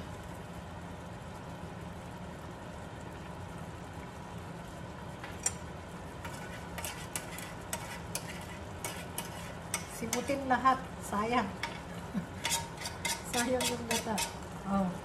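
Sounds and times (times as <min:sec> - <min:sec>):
steady low hum: 0:00.0 - 0:15.0
metal spoon scraping tin can: 0:06.2 - 0:09.9, 0:12.4 - 0:14.4.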